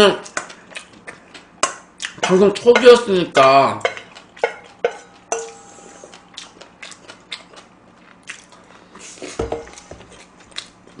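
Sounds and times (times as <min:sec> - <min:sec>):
chewing and mouth sounds: 0:00.2 - 0:03.1, 0:03.8 - 0:05.3, 0:06.0 - 0:11.0
metal spoon scraping steel bowl: 0:04.4 - 0:06.3.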